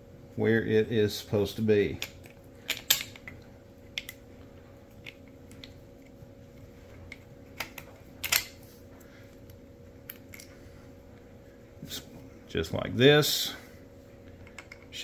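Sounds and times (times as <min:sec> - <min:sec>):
small clicks and taps of parts: 0:14.4 - 0:14.9.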